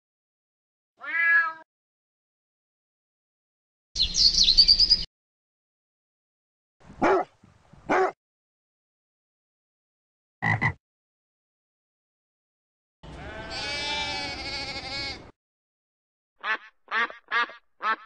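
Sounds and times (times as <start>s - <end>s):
sheep bleating: 13.0s - 15.3s
duck quacking: 16.4s - 18.0s.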